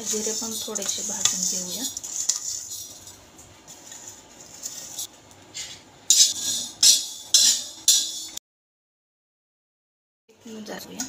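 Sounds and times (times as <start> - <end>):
seeds dry-roasting in pan: 0.0 - 8.4
spatula scraping pan: 0.0 - 8.4.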